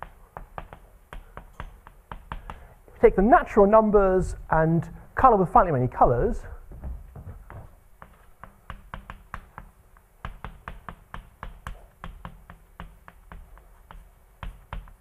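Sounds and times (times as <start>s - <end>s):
chalk tapping on a blackboard: 0.0s - 2.9s, 7.1s - 15.0s.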